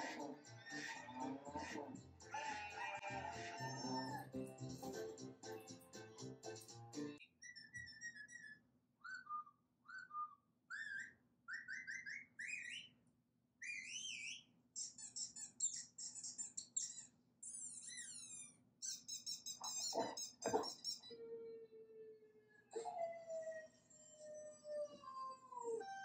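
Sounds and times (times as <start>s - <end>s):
bird singing: 7.4s - 13.0s.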